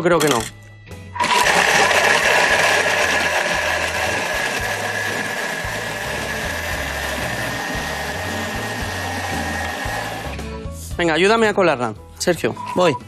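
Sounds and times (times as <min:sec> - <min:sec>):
blender whirring: 0:01.2 - 0:10.5.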